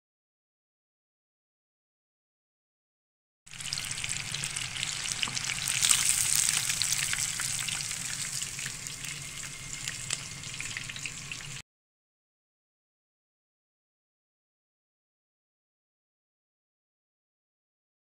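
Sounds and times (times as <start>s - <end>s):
fish deep-frying in hot oil: 3.5s - 11.6s.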